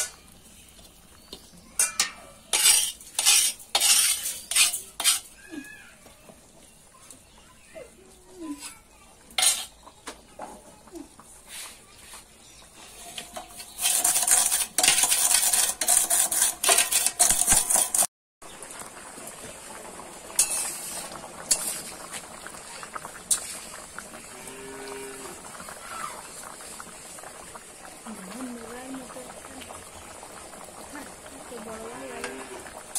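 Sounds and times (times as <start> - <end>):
curry bubbling in a pan: 0.0 - 16.5, 18.4 - 32.9
metal ladle stirring and knocking pan: 0.8 - 5.3, 9.4 - 10.6, 13.1 - 18.1, 20.4 - 21.9
metal utensils clattering in steel bowl: 1.8 - 5.4, 9.4 - 9.8, 13.0 - 18.1, 20.4 - 21.9.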